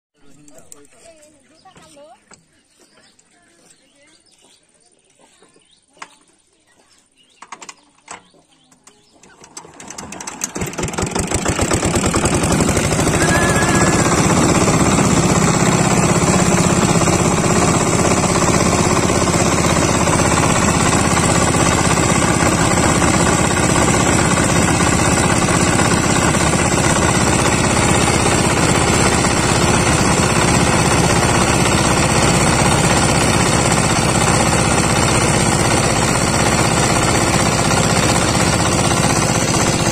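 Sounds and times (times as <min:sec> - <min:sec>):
diesel boat engine running: 0:10.0 - 0:39.9.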